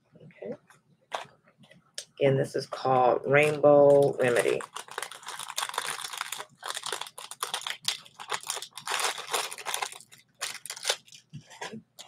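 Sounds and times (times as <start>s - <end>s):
crinkly packaging rustling: 3.4s - 11.8s.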